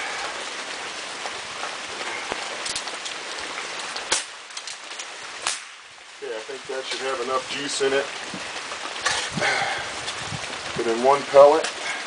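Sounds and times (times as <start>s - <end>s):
steady rain: 0.0s - 12.0s
pellet pistol shots: 5.4s - 5.8s.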